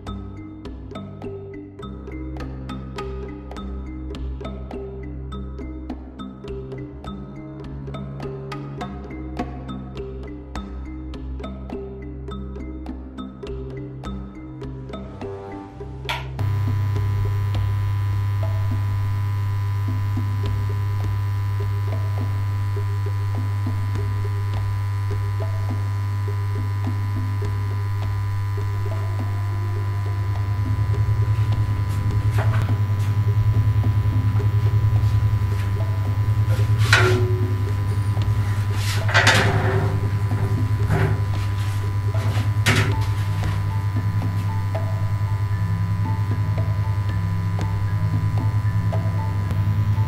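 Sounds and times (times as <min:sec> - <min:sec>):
loud low hum: 0:16.4 - 0:50.0.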